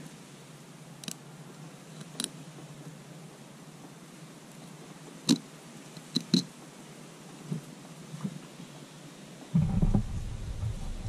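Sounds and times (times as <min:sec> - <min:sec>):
low rumble: 0:09.6 - 0:11.0.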